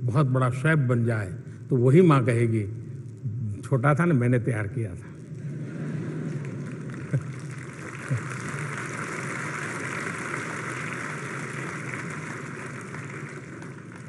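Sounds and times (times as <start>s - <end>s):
audience applauding: 6.0s - 14.0s.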